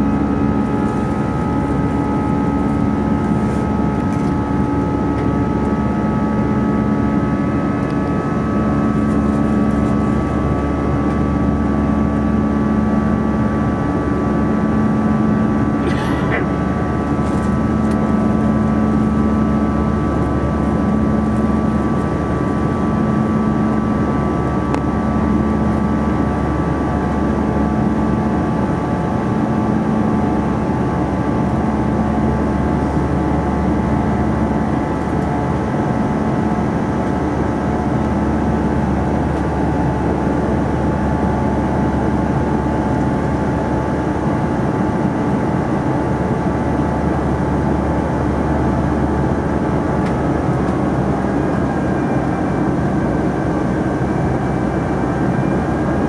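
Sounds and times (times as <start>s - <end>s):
pulsing low hum: 0.0s - 35.0s
jet engine drone: 0.0s - 56.0s.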